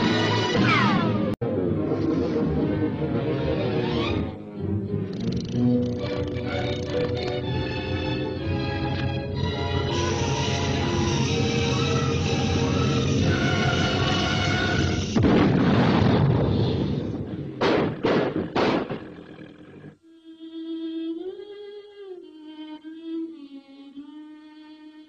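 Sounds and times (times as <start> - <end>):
rocket roar: 11.4 - 19.8
rocket blast: 14.7 - 19.2.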